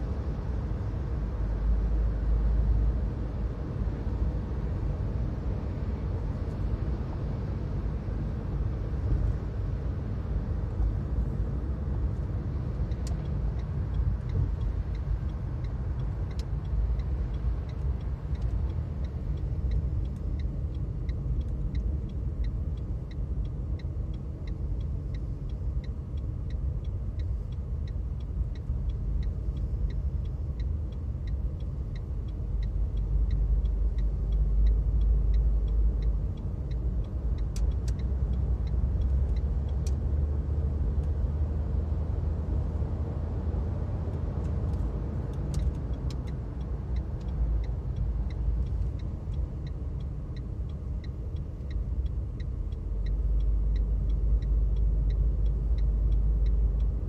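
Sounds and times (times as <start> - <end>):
car cabin road rumble: 0.0 - 57.0
regular light ticking: 10.7 - 57.0.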